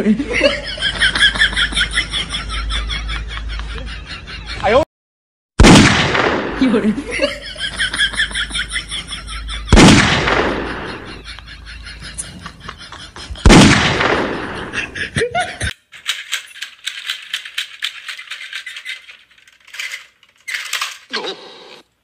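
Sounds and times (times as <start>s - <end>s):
gunshot sound effects: 5.6s - 6.7s, 9.7s - 11.1s, 13.5s - 14.6s.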